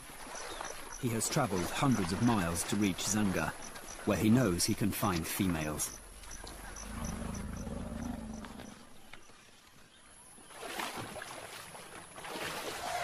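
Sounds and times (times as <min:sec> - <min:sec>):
elephant rumbling: 0:05.7 - 0:09.1.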